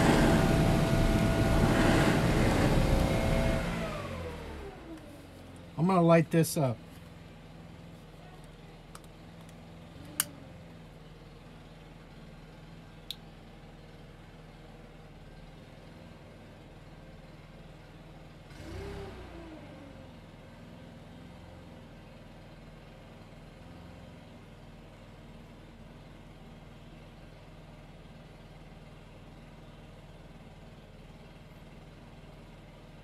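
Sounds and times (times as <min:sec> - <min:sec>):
rushing noise: 0:00.0 - 0:04.0
small engine humming: 0:00.0 - 0:05.7, 0:16.2 - 0:33.0.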